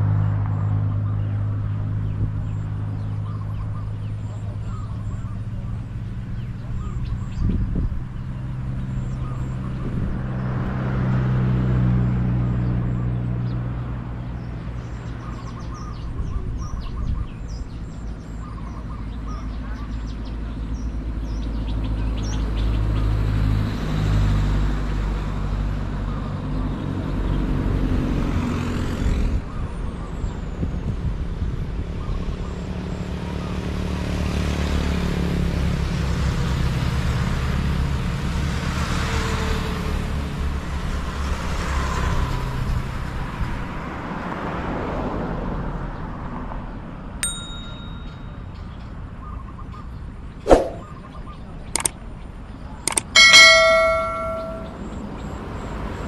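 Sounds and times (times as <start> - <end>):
vehicles driving by: 0.0 - 56.0
motorcycle passing: 53.2 - 54.9.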